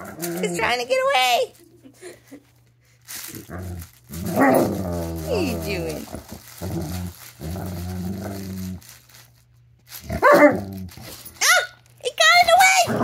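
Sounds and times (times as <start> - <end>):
dog growling in play: 0.0 - 0.8, 3.2 - 9.0, 10.0 - 11.3.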